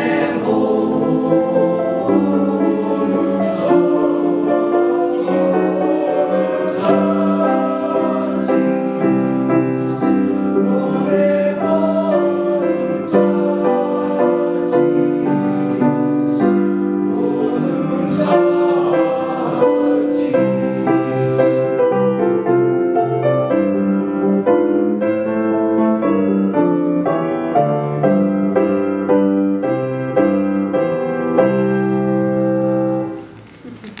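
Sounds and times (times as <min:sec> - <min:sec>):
boys singing in chords: 0:00.0 - 0:22.5.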